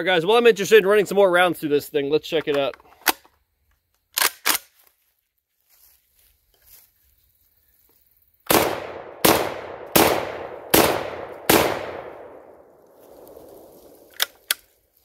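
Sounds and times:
gun handling clicks: 0:04.1 - 0:04.8, 0:13.2 - 0:14.8
shotgun shots: 0:08.5 - 0:12.6.

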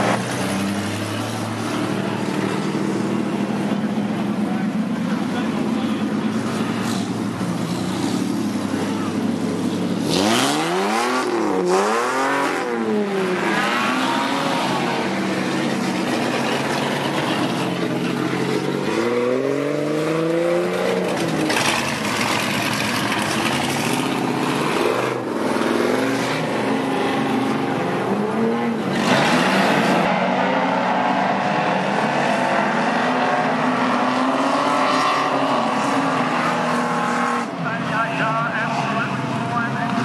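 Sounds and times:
race car engines revving: 0:00.0 - 0:40.0
drone of distant engines: 0:35.7 - 0:40.0.

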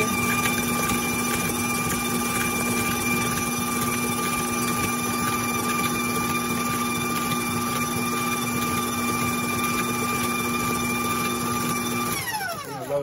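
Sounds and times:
stand mixer humming: 0:00.0 - 0:13.0.

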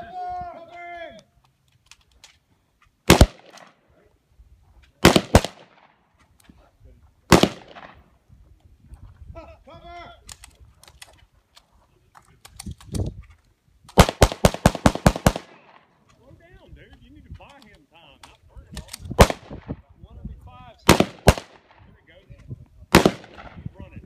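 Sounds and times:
gunshots: 0:03.0 - 0:03.8, 0:05.0 - 0:06.0, 0:07.3 - 0:08.0, 0:13.9 - 0:15.9, 0:19.1 - 0:19.8, 0:20.8 - 0:21.9, 0:22.9 - 0:23.7
rapid string of gunshots: 0:03.1 - 0:03.7, 0:05.0 - 0:05.9, 0:14.0 - 0:15.8, 0:20.9 - 0:21.8, 0:22.9 - 0:23.6.

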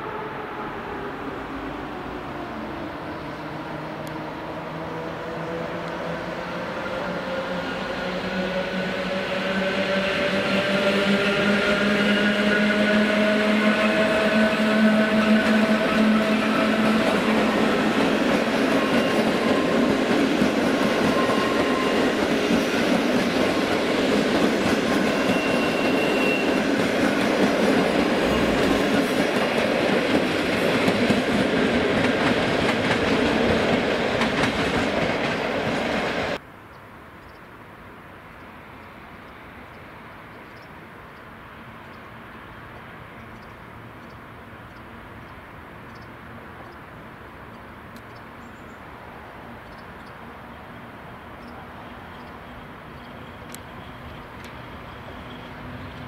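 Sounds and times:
distant locomotive rumble: 0:00.0 - 0:36.4.

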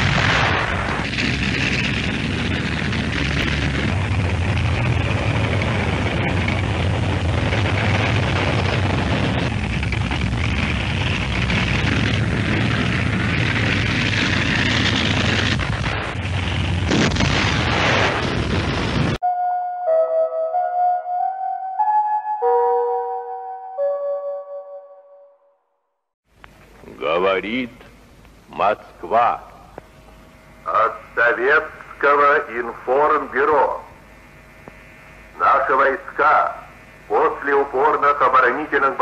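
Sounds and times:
artillery rumble: 0:00.0 - 0:19.2
explosion bangs: 0:00.0 - 0:19.2.

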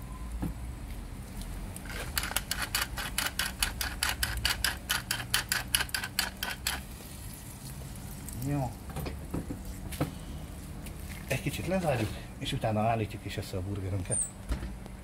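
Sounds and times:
pepper mill ratcheting clicks: 0:01.9 - 0:06.8.

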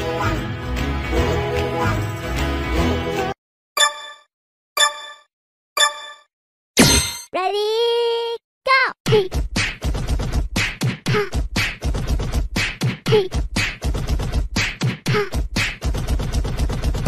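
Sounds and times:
sharp percussive hits: 0:06.8 - 0:07.4.

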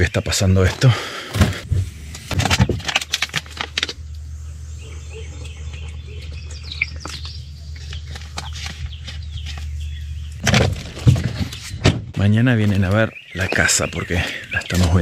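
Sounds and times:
steady low hum: 0:00.9 - 0:13.2
faint bird chirps: 0:04.3 - 0:10.4, 0:12.9 - 0:15.0.

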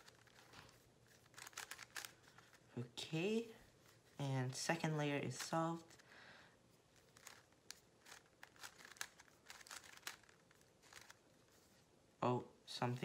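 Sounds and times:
puzzle cube plastic clicks: 0:00.0 - 0:02.7, 0:06.9 - 0:11.3.

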